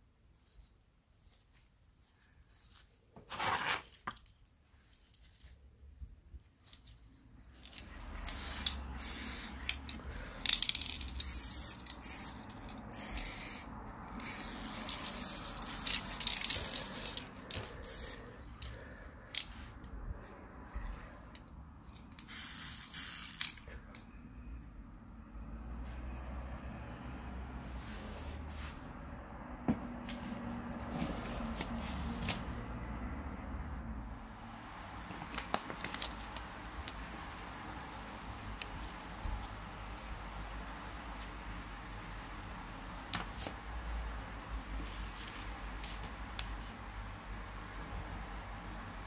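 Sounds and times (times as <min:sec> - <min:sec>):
spray paint can hissing: 0:08.2 - 0:09.9, 0:10.5 - 0:18.2, 0:22.2 - 0:23.5.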